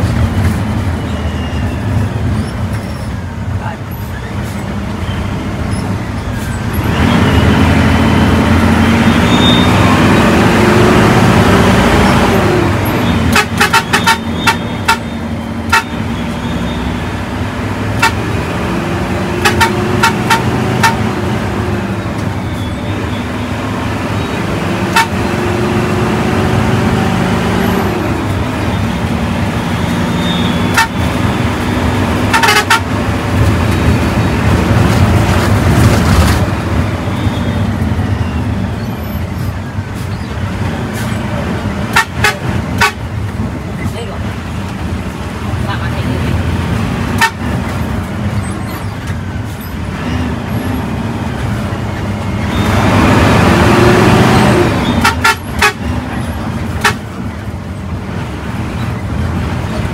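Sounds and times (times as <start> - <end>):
bus diesel engine accelerating: 0.0 - 59.9
road noise: 0.0 - 59.9
bus horn tooting: 7.2 - 10.7, 11.5 - 17.1, 17.9 - 18.6, 19.3 - 21.4, 24.8 - 25.7, 28.7 - 33.2, 41.8 - 43.1, 47.0 - 47.8, 52.4 - 57.3.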